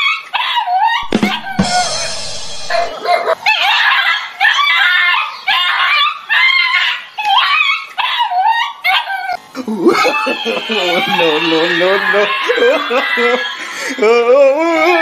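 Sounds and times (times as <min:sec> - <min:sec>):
dog yelping and crying: 0:00.0 - 0:01.5, 0:02.1 - 0:09.4.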